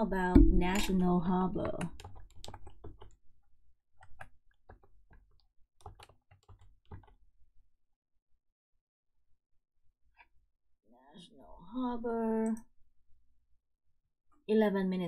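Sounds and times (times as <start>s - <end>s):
keyboard key clicks: 5.8s - 7.1s.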